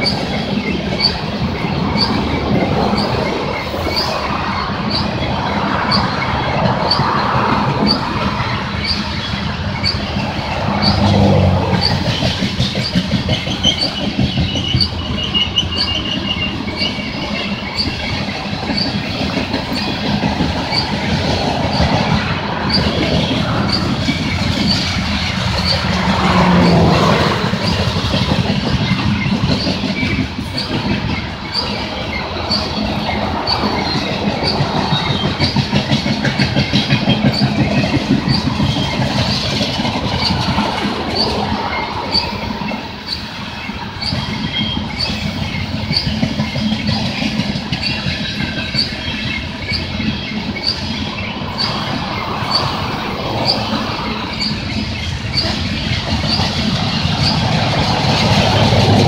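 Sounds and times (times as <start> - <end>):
rail clicks: 0.0 - 59.0
train wheels rumbling on rail: 0.0 - 59.0
faint wheel squeal: 7.8 - 19.2.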